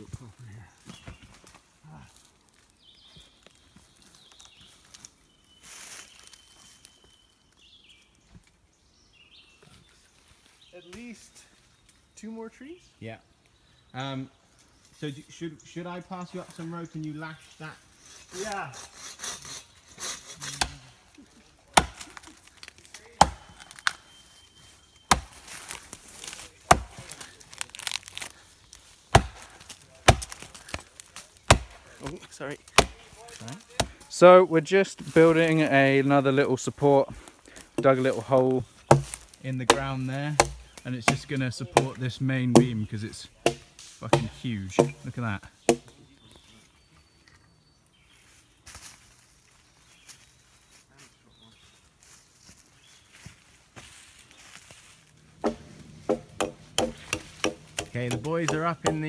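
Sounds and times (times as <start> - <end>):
wooden poles rustling and scraping: 0.0 - 7.0, 16.2 - 46.8, 48.1 - 59.0
bird chirps: 2.7 - 18.7, 23.4 - 25.8, 44.9 - 48.7
axe chopping tree trunk: 20.3 - 20.9, 21.7 - 24.0, 25.1 - 27.2, 29.1 - 30.8, 31.4 - 31.8, 32.7 - 33.2, 33.8 - 34.1, 38.8 - 42.8, 43.4 - 45.1, 45.7 - 46.0, 55.4 - 59.0.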